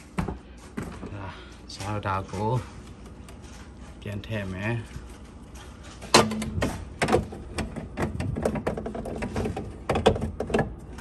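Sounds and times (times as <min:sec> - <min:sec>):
plastic rattles: 0:06.3 - 0:11.0.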